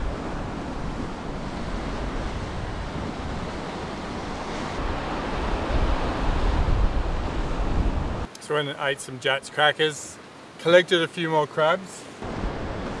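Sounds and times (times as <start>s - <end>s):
ocean swell washing over rocks: 0.0s - 8.3s
wind buffeting microphone: 0.0s - 8.3s.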